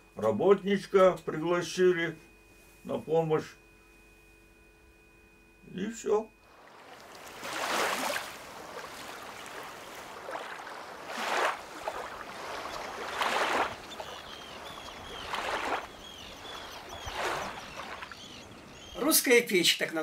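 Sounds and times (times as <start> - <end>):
small waves washing on sand: 6.6 - 18.8
birds chirping: 8.4 - 20.0.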